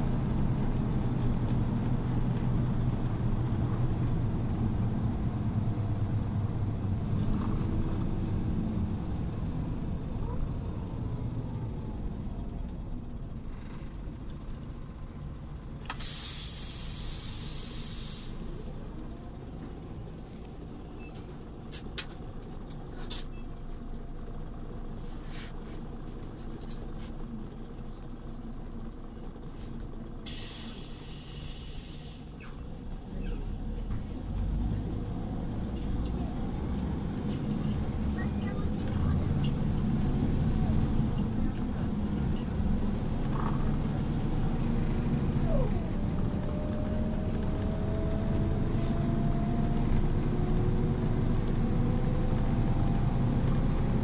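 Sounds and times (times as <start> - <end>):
bus engine rumble: 0.0 - 54.0
compressed air hissing: 16.0 - 18.4.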